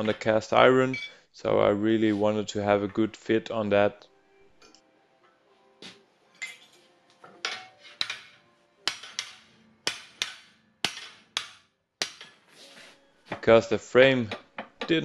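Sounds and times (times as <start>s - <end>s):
hammer striking steel bar: 7.4s - 12.4s.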